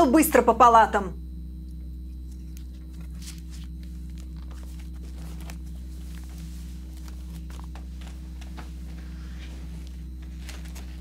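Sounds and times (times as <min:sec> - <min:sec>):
low hum: 0:00.0 - 0:11.0
paper pages rustling: 0:02.3 - 0:11.0.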